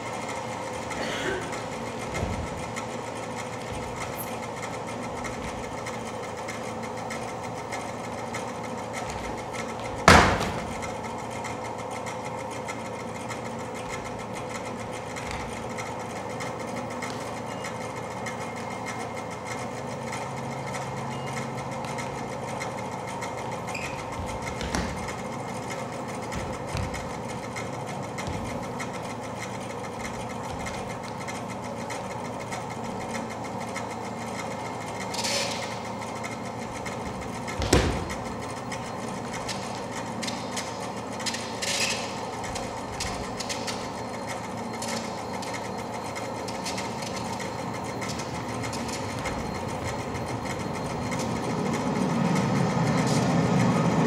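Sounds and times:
machine whirring drone: 0:00.0 - 0:54.0
loud sharp thump: 0:10.0 - 0:10.7, 0:37.6 - 0:38.2.

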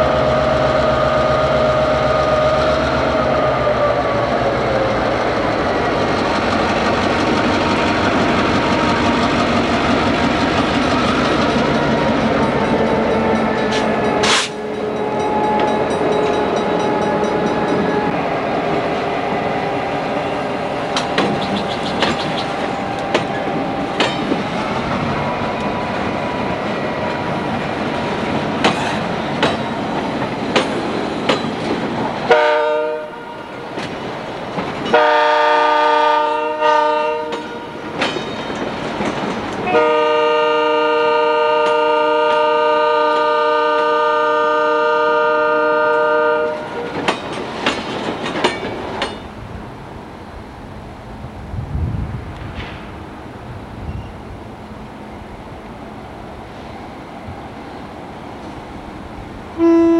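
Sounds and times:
diesel locomotive engines running: 0:00.0 - 0:59.9
train wheels clicking on rail joints: 0:00.1 - 0:32.4, 0:33.4 - 0:36.3, 0:37.2 - 0:40.1, 0:41.5 - 0:44.0, 0:45.9 - 0:49.6, 0:52.3 - 0:54.3
locomotive air horn: 0:12.9 - 0:18.2, 0:32.3 - 0:33.6, 0:34.9 - 0:37.8, 0:39.6 - 0:47.0, 0:59.6 - 0:59.9.

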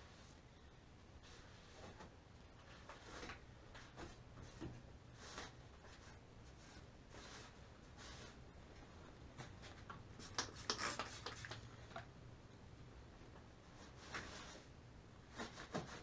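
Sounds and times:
spray bottle squirts: 0:10.2 - 0:11.7.

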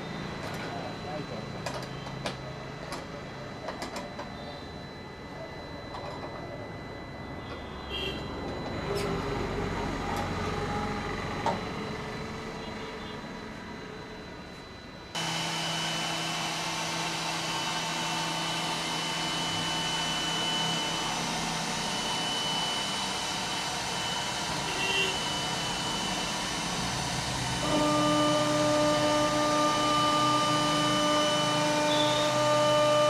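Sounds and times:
wood router whining: 0:15.1 - 0:33.0.

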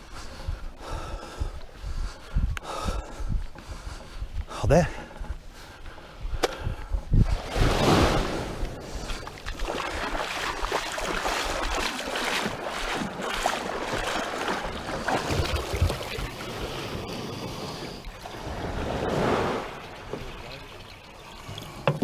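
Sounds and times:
wind buffeting microphone: 0:00.0 - 0:11.9
water washing and splashing: 0:07.2 - 0:22.0.

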